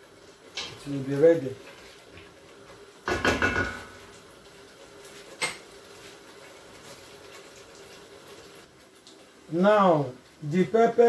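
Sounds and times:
wooden spoon stirring stew: 0.3 - 3.2
cookware clanking: 3.1 - 4.0.

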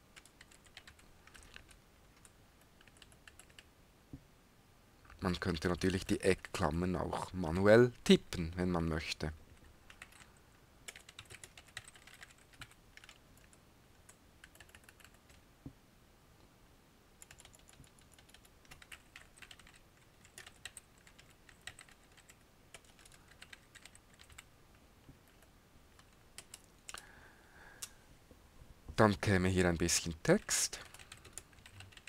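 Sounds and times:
faint keyboard typing: 0.0 - 3.7, 5.0 - 6.8, 9.4 - 15.4, 17.2 - 28.0, 30.3 - 32.0.

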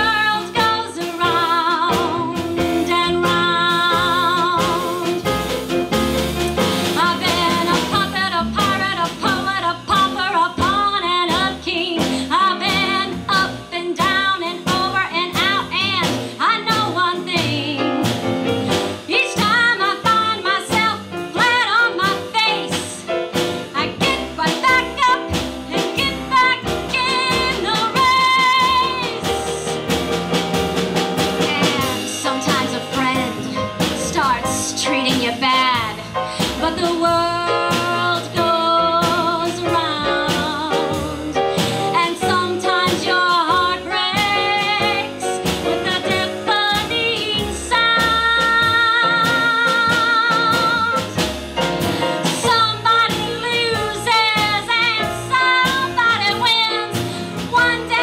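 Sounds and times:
drums: 0.0 - 58.0
upright bass: 0.0 - 58.0
woman singing a show tune: 23.8 - 25.3, 25.9 - 29.7, 31.5 - 51.0, 52.4 - 58.0.

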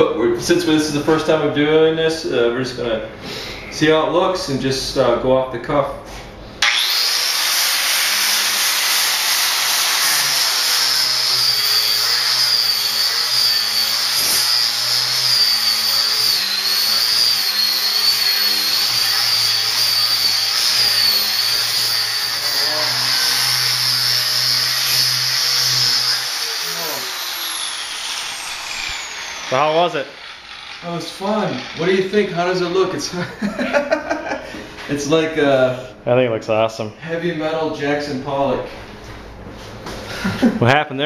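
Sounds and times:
angle grinder grinding steel: 6.6 - 33.2.

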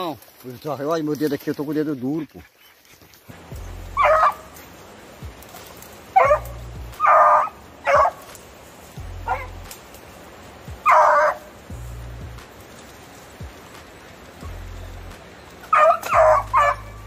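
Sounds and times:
hound baying: 3.9 - 4.6, 6.1 - 8.3, 9.2 - 9.7, 10.8 - 11.5, 15.6 - 17.0.

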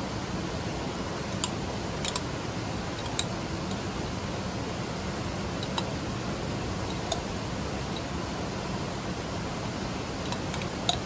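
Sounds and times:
spoon and pot clicks: 1.4 - 2.2.

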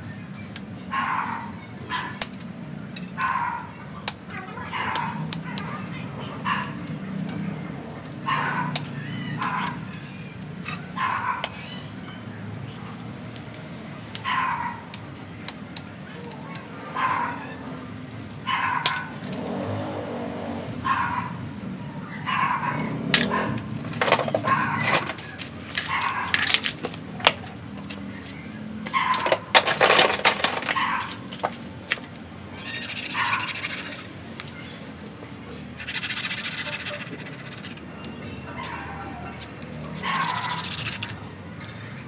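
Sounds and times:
hand tools scraping roots and soil: 35.8 - 37.9, 39.4 - 41.2.

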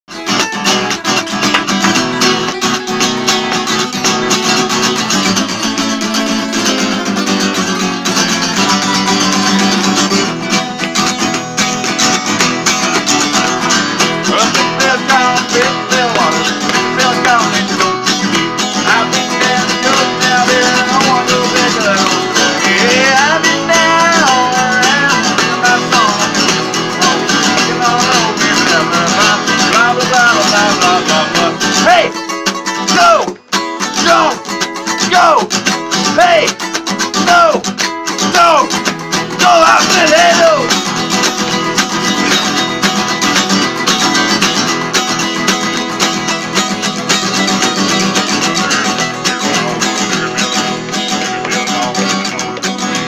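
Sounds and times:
acoustic guitars strumming: 0.1 - 53.0
man singing: 13.0 - 41.0, 47.4 - 53.0.

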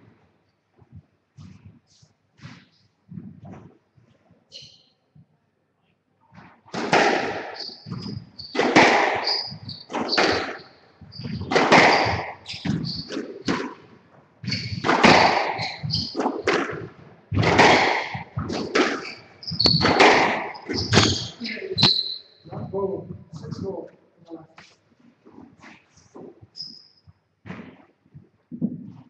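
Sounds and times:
shoes squeaking on floor: 0.8 - 5.3, 6.3 - 23.8, 24.6 - 29.0
squash ball cracking off rackets: 6.7 - 21.4.

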